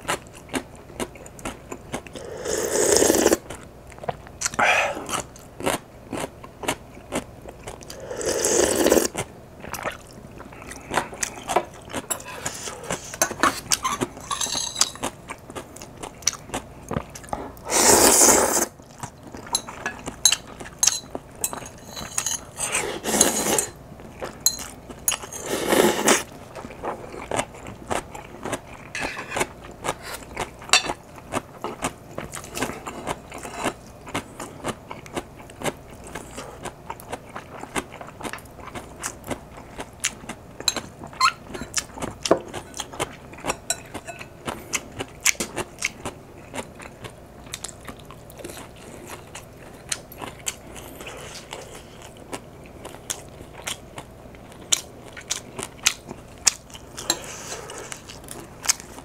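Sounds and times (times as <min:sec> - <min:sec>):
chewing and mouth noises: 0:00.0 - 0:17.4, 0:24.0 - 0:59.0
slurping noodles: 0:02.2 - 0:03.4, 0:07.9 - 0:09.2, 0:17.7 - 0:18.8, 0:22.6 - 0:23.7, 0:25.3 - 0:26.3
spoon and chopsticks clinking bowl: 0:13.2 - 0:15.1, 0:19.5 - 0:22.6, 0:24.4 - 0:25.4, 0:43.5 - 0:44.3.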